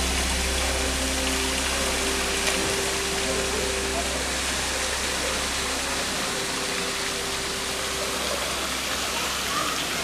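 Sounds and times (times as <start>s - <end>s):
water pouring into pool: 0.0s - 10.0s.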